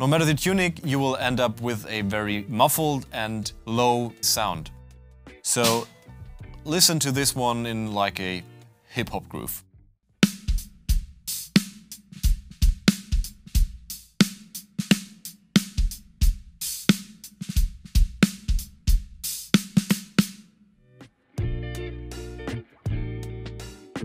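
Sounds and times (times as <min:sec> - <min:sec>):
muffled snare drum: 0:05.5 - 0:06.0, 0:10.2 - 0:20.5
kick drum: 0:10.2 - 0:11.3, 0:12.2 - 0:13.9, 0:15.8 - 0:16.6, 0:17.6 - 0:19.3.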